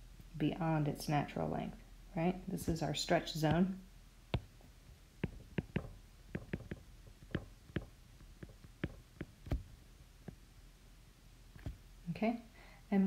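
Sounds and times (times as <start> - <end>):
stylus tapping on glass screen: 4.3 - 4.5, 5.2 - 10.4.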